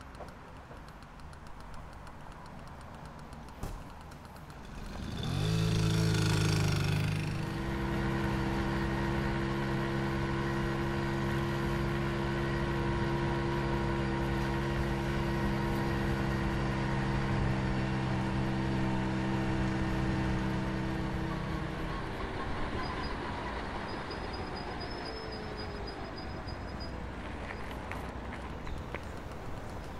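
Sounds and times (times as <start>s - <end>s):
moped engine revving up: 4.4s - 25.0s.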